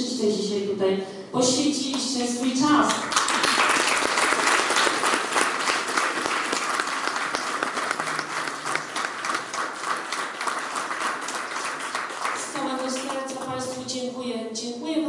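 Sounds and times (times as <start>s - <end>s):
audience applauding: 3.0s - 13.2s.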